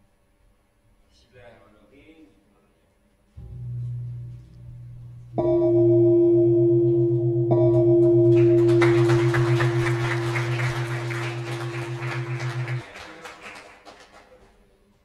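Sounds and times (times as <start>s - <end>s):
deep beating hum: 3.4s - 12.8s
gong struck with mallet: 3.4s - 12.8s
applause: 8.3s - 14.9s.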